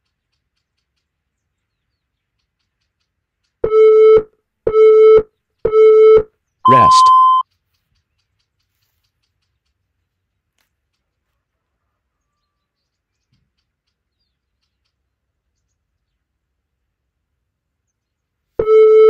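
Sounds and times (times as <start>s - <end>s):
electronic timer beep: 3.6s - 7.4s, 18.6s - 19.0s.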